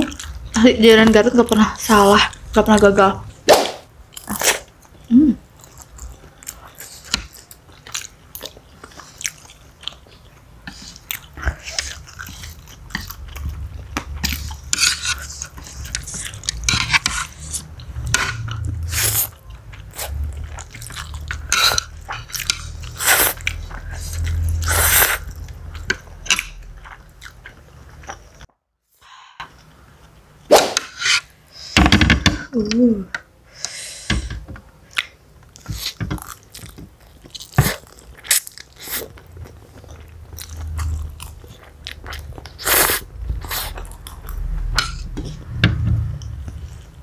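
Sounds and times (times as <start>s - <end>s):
people chewing and slurping noodles: 0.0s - 0.7s, 4.1s - 28.5s, 30.8s - 47.0s.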